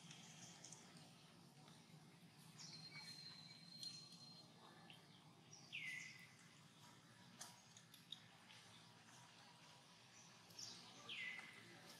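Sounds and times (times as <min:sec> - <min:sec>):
faint clicks: 0:00.0 - 0:01.1.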